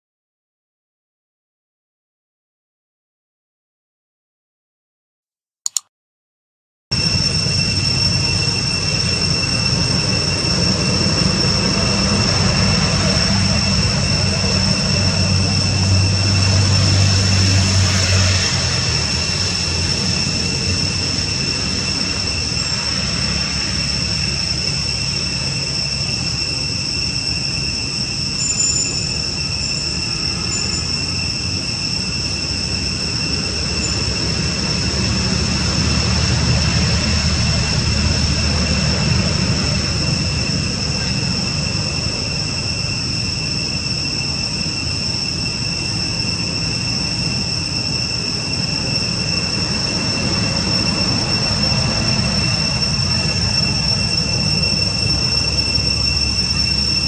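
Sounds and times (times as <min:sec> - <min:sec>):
short click: 0:05.6 - 0:05.9
high-pitched whine: 0:06.9 - 0:57.0.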